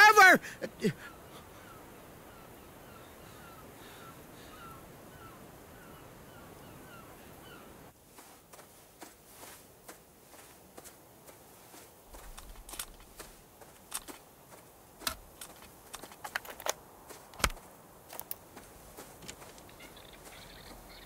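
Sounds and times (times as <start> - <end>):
faint outdoor ambience: 0.0 - 21.0
cassette player plastic clicks: 17.4 - 17.6
bird chirping: 19.3 - 21.0.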